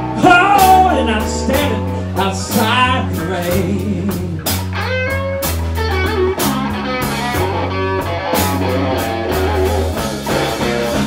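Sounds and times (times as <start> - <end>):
electric guitar with bent notes: 0.0 - 11.0
slow blues band music: 0.0 - 11.0.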